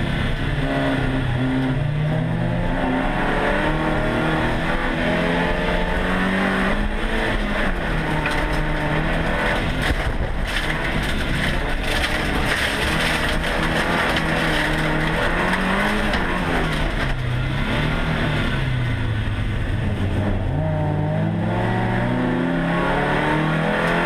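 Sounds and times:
race car engine revving: 0.0 - 24.0
tyre and road noise: 0.0 - 24.0.

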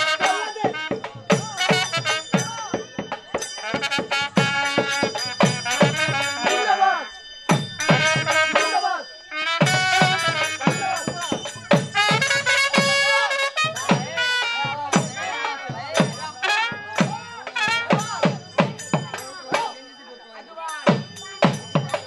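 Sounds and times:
trumpet playing melody: 0.0 - 2.7, 3.6 - 7.1, 7.8 - 11.1, 11.7 - 18.3
dhol drum beating: 0.0 - 19.8, 20.7 - 22.0.

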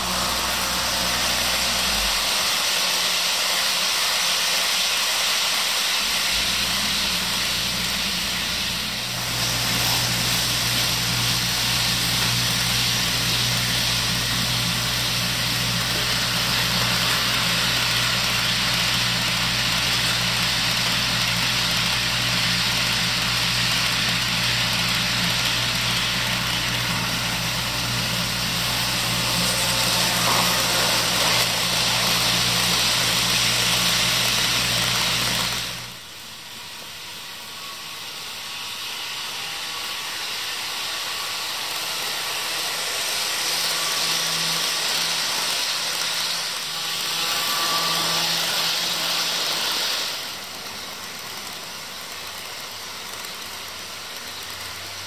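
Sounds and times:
low hum: 6.0 - 16.6.

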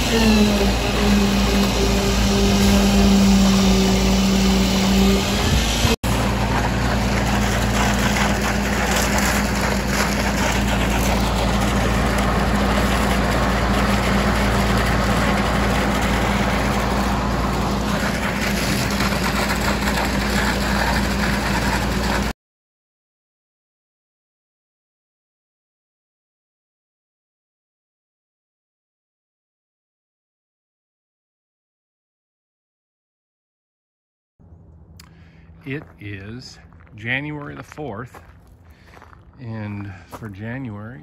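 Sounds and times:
diesel engine running steadily: 0.0 - 22.3, 34.4 - 41.0.

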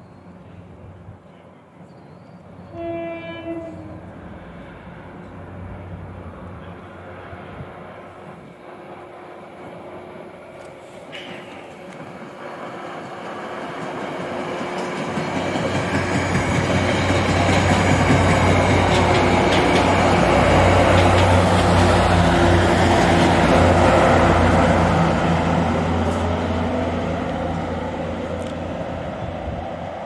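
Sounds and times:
diesel locomotive engine drone: 0.1 - 30.0
train wheels clattering on rails: 10.5 - 23.8.

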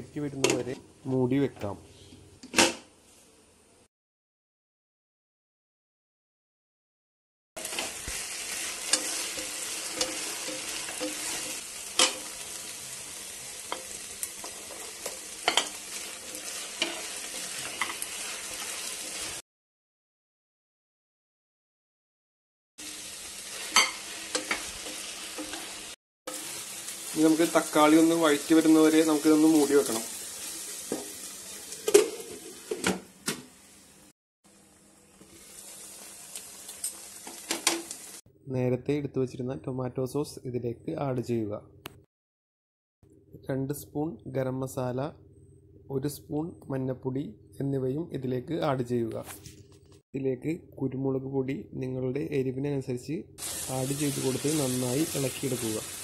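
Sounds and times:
onions sizzling in oil: 7.6 - 19.4, 22.8 - 32.8, 34.5 - 38.2, 53.4 - 56.0.

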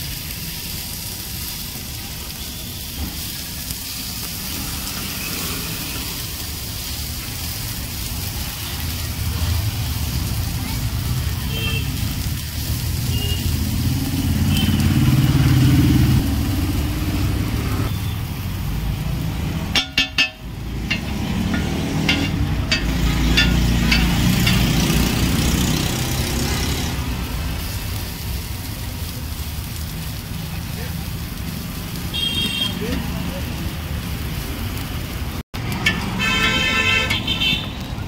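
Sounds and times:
road traffic engine rumble: 0.0 - 38.0
horn toots: 13.0 - 16.0, 32.1 - 33.0, 36.1 - 37.8
spatula scraping on metal griddle: 19.7 - 26.9
sharp spatula taps: 19.8 - 24.8.

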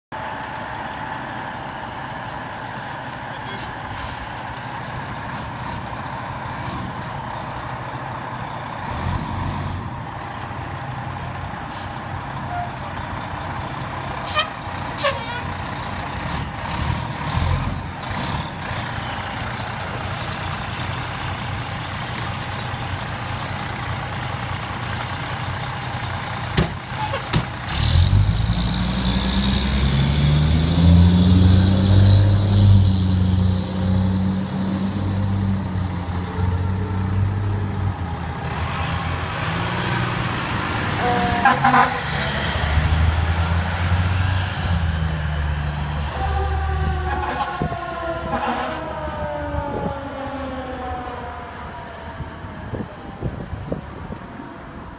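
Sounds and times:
diesel truck engine running: 0.2 - 31.4
air brake hisses: 3.9 - 4.4.

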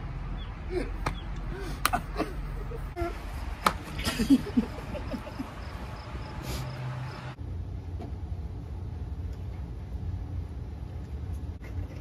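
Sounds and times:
tortillas slapping faces: 1.0 - 2.2, 3.5 - 4.2.

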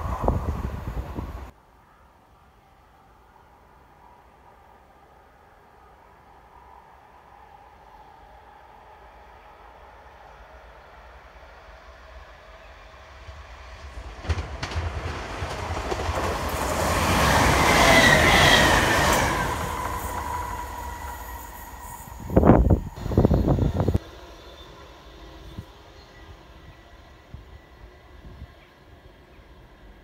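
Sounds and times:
train rumble and rail noise: 0.0 - 30.0.

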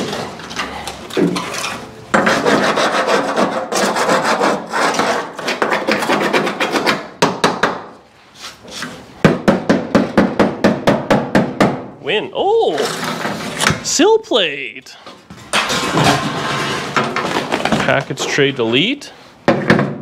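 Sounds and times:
hand scraping car bodywork: 1.3 - 7.2, 8.1 - 9.2, 12.7 - 13.8, 15.4 - 19.7.

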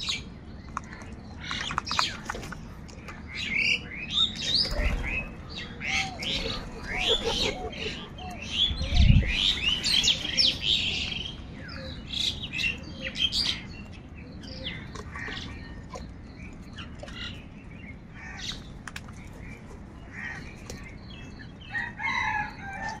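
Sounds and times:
crows calling: 18.2 - 18.7, 20.1 - 20.6.

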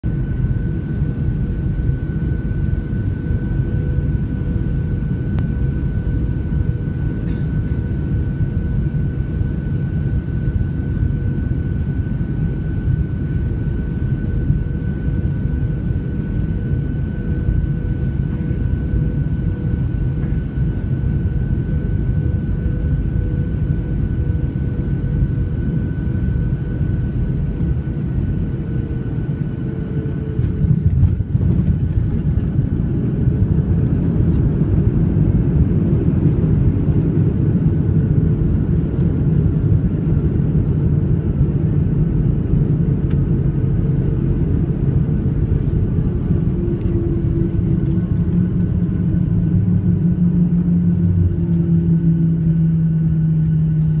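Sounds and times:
jet engines and airflow rumble: 0.0 - 54.0.

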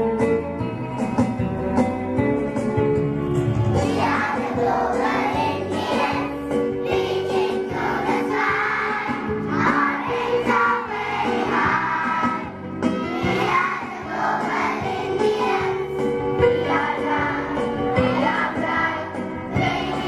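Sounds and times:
children singing in chorus: 3.8 - 15.9, 16.6 - 20.0.

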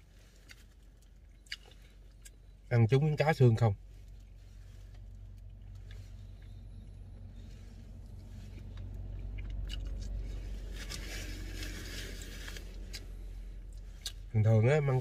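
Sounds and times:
steady low hum: 0.0 - 15.0
small clicks and mouth noises: 8.2 - 10.9.

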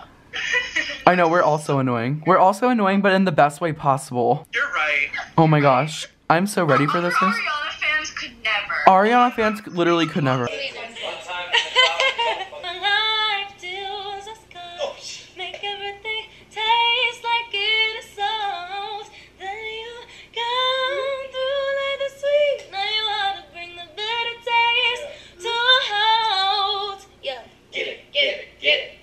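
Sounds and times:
woman singing slow melody: 12.6 - 27.5.

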